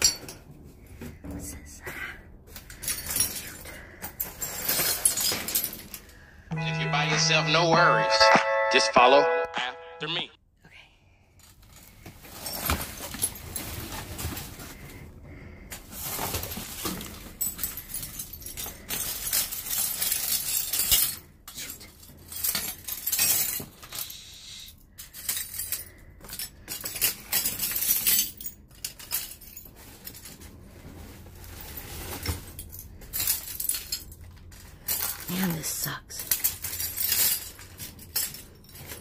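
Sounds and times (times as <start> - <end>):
glass clinking and crunching: 0.0 - 0.6, 2.6 - 7.4, 15.9 - 24.3, 25.0 - 39.0.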